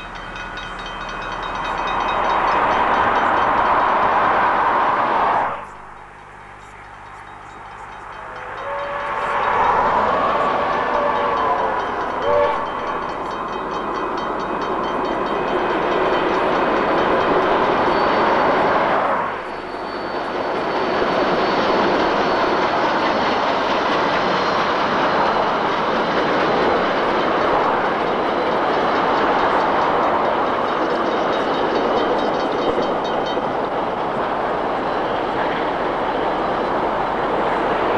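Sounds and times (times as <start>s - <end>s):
steam train rumbling on rails: 0.0s - 37.9s
train whistle: 7.5s - 13.2s.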